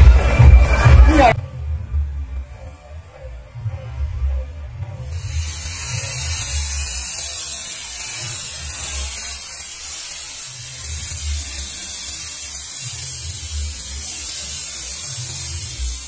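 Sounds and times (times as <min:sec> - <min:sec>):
low throb: 0:00.0 - 0:14.1
firework buzzing hiss: 0:05.0 - 0:16.0.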